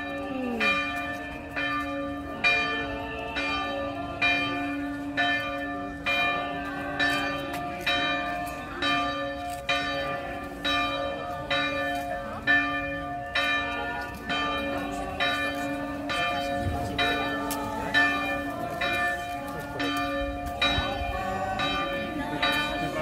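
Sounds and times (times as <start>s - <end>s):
church bell tolling: 0.0s - 23.0s.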